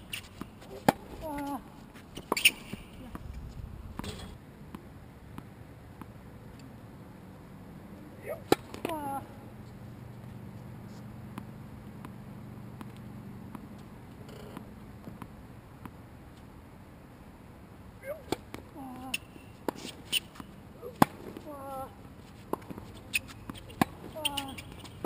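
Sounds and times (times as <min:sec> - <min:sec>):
low steady hum: 0:00.0 - 0:25.0
tennis racket hitting ball: 0:20.8 - 0:21.4.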